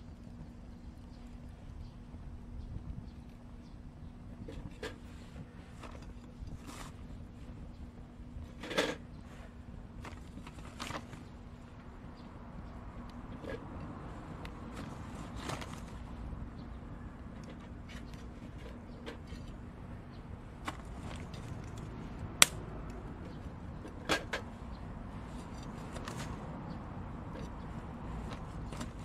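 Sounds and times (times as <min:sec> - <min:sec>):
wood fire crackling: 0:20.4 - 0:23.8
metal tongs clacking charcoal: 0:21.2 - 0:24.5.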